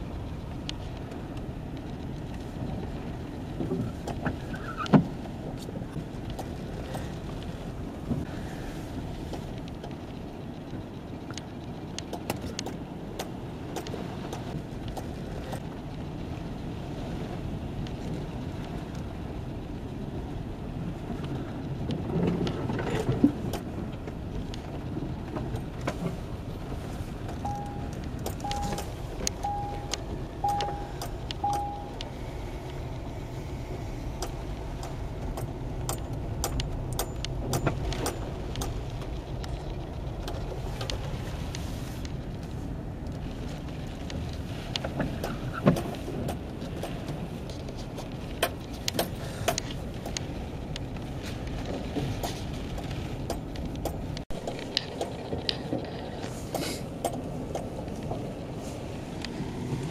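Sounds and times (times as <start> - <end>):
raindrops on car roof: 0.0 - 8.3, 9.0 - 59.9
car engine running: 0.0 - 59.9
short beeps: 27.4 - 32.0.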